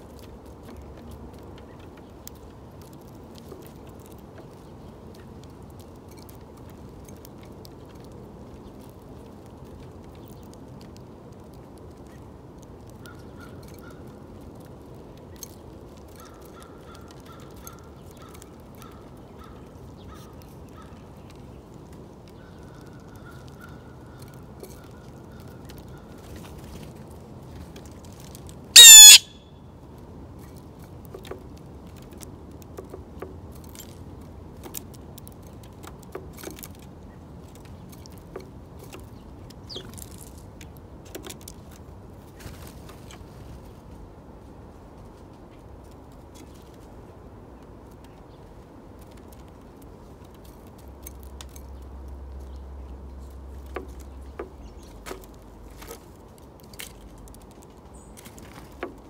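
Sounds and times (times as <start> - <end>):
harsh bird call: 28.8 - 29.4
faint ticks and taps: 30.4 - 41.9, 47.5 - 59.0.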